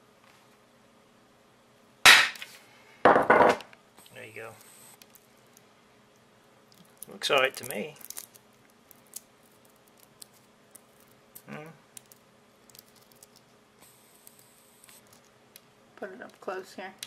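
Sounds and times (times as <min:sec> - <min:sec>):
nut shell clicks and crackles: 0:06.7 - 0:15.7.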